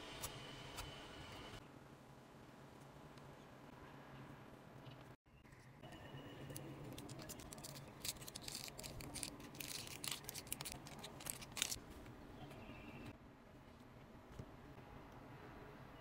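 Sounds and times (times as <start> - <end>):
plastic film crinkling: 6.8 - 11.9
plastic film snapping: 6.9 - 11.8.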